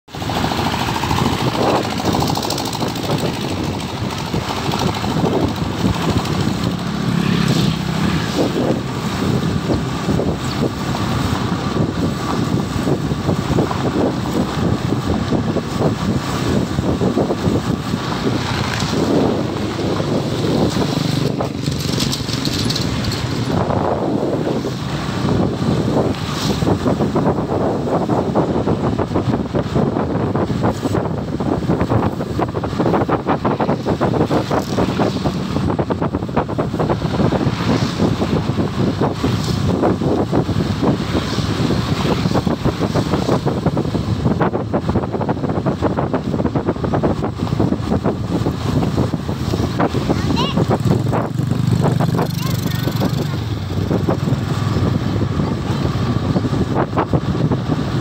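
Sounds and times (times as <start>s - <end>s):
motorcycle engine running: 0.1s - 58.0s
tyres rattling over loose stones: 0.3s - 7.0s, 21.2s - 23.5s.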